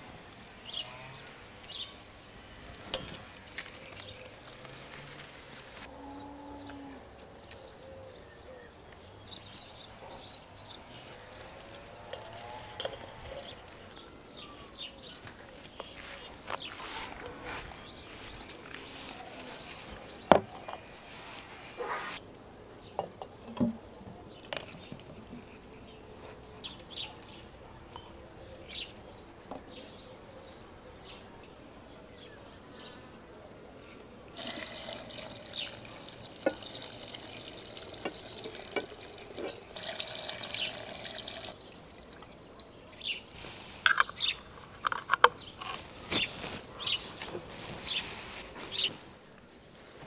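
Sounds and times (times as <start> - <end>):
birds chirping: 0.5 - 49.9
glass jars clinking: 2.9 - 3.2, 34.4 - 41.6
liquid pouring into glass jars: 34.4 - 42.8.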